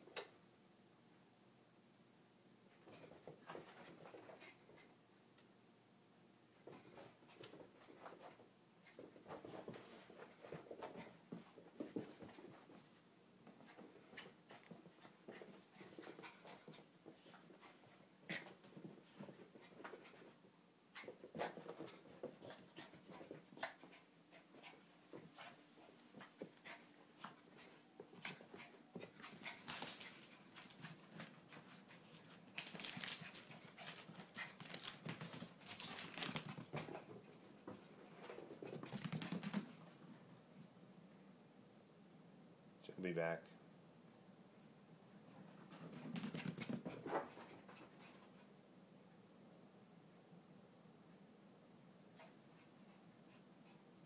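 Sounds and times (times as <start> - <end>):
patter of paws and claws: 6.6 - 40.7, 45.3 - 48.6
dog panting: 13.6 - 20.4, 21.0 - 37.2
animals scuffling: 21.0 - 40.2.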